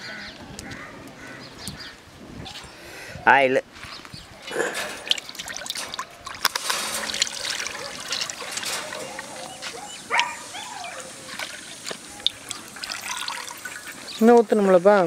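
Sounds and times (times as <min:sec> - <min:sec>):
cooking oil pouring: 0:11.7 - 0:14.2.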